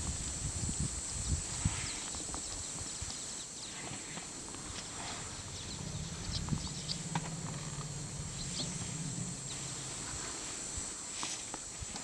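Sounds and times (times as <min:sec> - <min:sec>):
elephant low rumble: 0:03.9 - 0:11.2.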